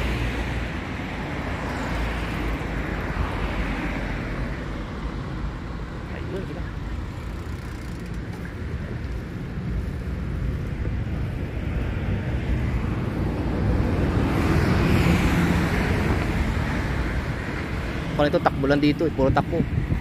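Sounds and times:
car passing: 0.0s - 20.0s
road traffic: 0.0s - 20.0s
wind on microphone: 8.0s - 20.0s.

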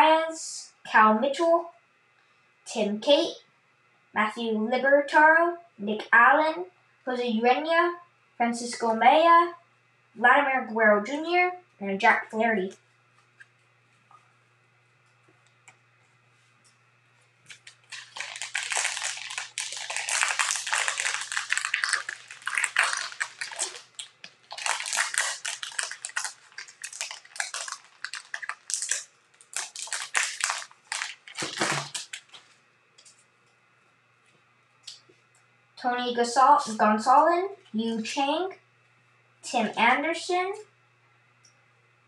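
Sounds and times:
wrapper crinkling and tearing: 17.5s - 32.6s.

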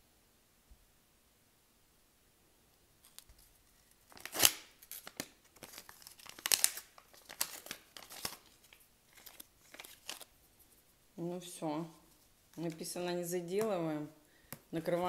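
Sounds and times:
paper crinkling and ripping: 3.0s - 10.4s.

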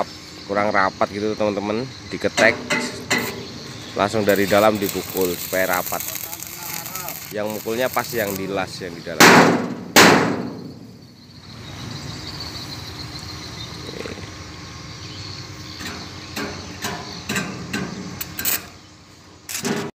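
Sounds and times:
arc welding crackling hiss: 0.0s - 9.7s, 15.4s - 18.9s, 19.5s - 19.9s.

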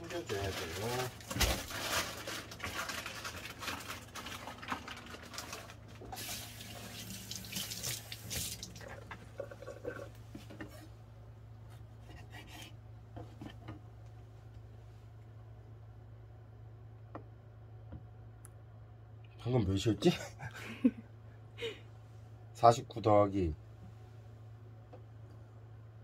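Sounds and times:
low steady hum: 0.0s - 26.0s
tap water running into sink: 6.1s - 10.1s.

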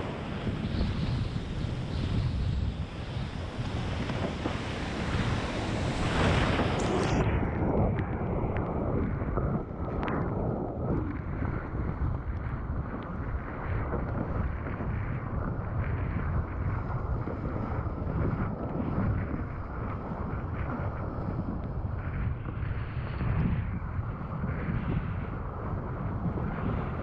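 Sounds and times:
wind buffeting microphone: 0.0s - 27.0s
water rushing and splashing: 2.9s - 7.2s.

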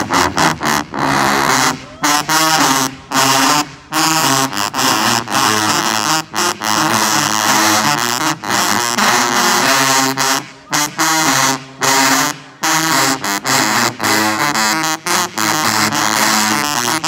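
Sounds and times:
tubas playing low brass phrases: 0.0s - 17.0s.

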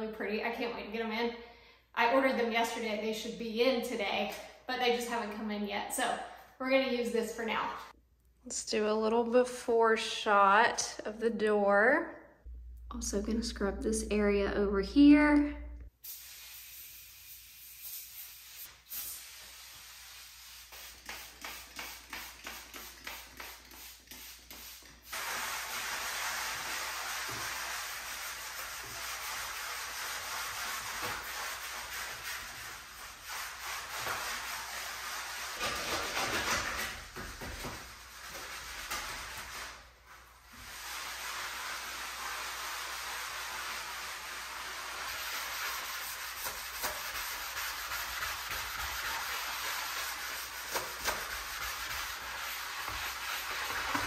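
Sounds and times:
steady hiss: 16.0s - 27.6s
sponge scrubbing glass: 19.2s - 54.0s.

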